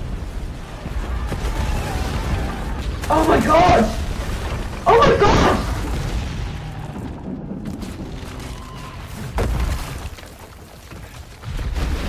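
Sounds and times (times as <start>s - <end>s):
deep rumbling: 3.8s - 10.2s.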